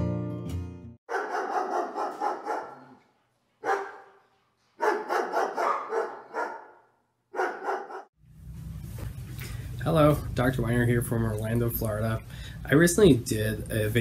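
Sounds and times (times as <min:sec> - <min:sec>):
dog barking: 0:01.1 - 0:03.0, 0:03.6 - 0:04.2, 0:04.8 - 0:08.1.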